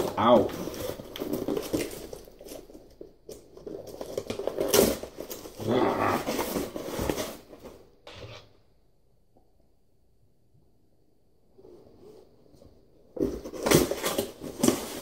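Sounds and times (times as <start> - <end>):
cardboard box being torn open: 3.8 - 7.3.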